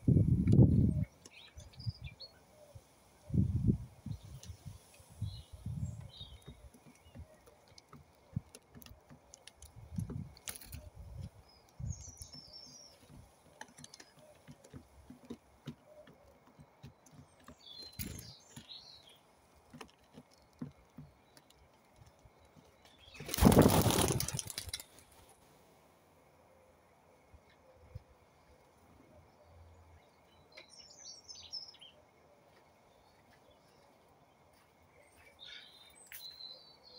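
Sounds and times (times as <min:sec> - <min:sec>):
pigeons pecking on wooden board: 0:06.0 - 0:18.8, 0:19.4 - 0:25.3
pigeon wingbeats: 0:23.1 - 0:25.3.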